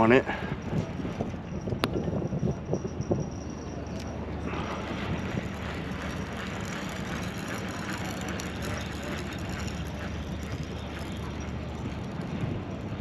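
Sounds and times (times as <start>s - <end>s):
low mechanical hum: 0.6s - 13.0s.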